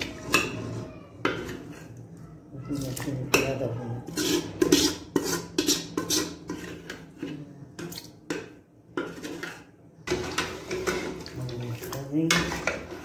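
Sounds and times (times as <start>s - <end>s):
steel ladle scraping metal pot: 0.0s - 13.0s.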